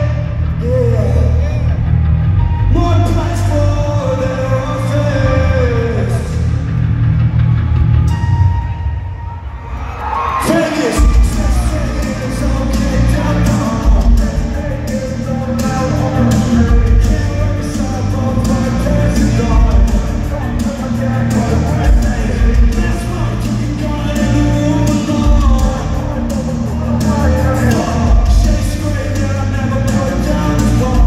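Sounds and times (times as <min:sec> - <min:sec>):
drums and heavy bass: 0:00.0 - 0:31.0
live rock music: 0:00.0 - 0:31.0
person singing: 0:10.4 - 0:31.0.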